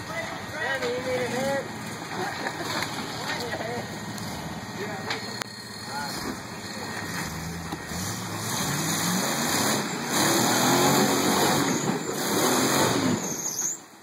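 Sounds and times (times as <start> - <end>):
engine revving under load: 3.9 - 4.8, 5.6 - 13.4.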